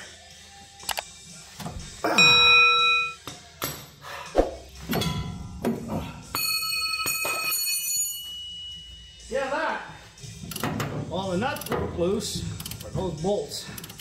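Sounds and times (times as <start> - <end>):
ringing metallic clangs: 4.9 - 5.6.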